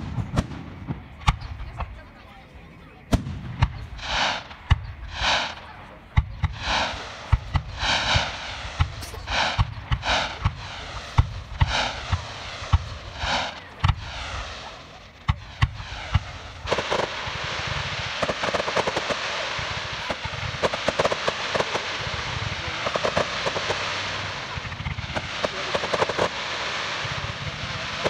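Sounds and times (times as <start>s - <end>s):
fireworks whooshing launches: 0.0s - 1.8s, 3.1s - 28.0s
fireworks booming: 0.0s - 28.0s
fireworks crackling with rapid pops: 0.0s - 28.0s.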